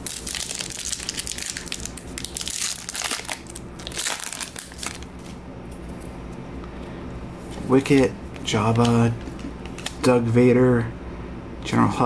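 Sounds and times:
plastic wrapper crinkling: 0.0s - 5.4s, 8.7s - 10.1s.

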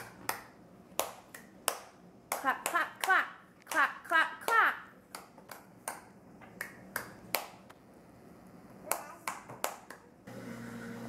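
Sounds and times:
hands clapping: 0.0s - 3.8s, 4.5s - 7.7s, 8.9s - 10.1s.

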